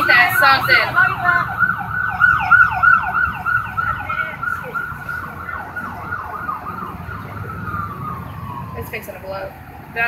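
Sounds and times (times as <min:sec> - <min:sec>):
siren yelping: 0:00.0 - 0:09.8.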